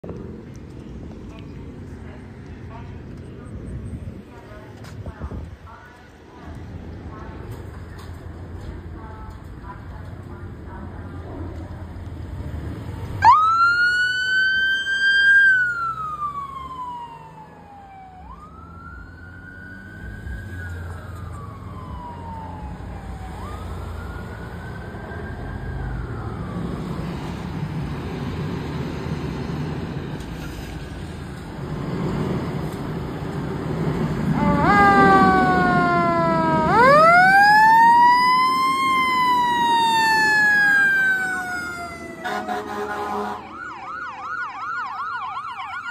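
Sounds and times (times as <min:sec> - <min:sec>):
fire engine rumble: 0:00.0 - 0:45.9
fire sirens wailing: 0:13.2 - 0:28.8, 0:33.6 - 0:45.9
siren tone sweeping down: 0:34.3 - 0:42.7.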